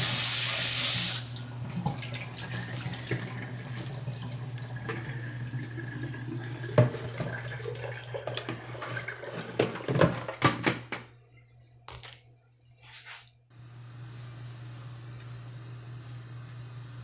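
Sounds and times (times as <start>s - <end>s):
water draining through a colander: 0.0s - 10.5s.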